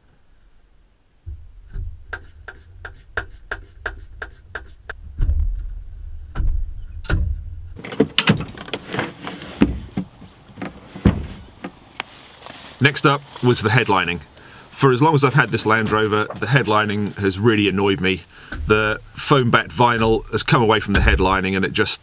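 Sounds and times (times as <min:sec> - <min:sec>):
seat knocking and clunking: 0:07.1 - 0:12.0, 0:15.4 - 0:16.9, 0:18.5 - 0:19.3.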